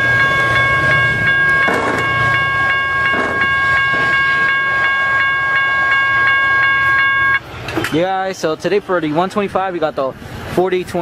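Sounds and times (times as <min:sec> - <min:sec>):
crossing warning bell ringing: 0:00.0 - 0:08.1
diesel train rumble: 0:00.0 - 0:11.0.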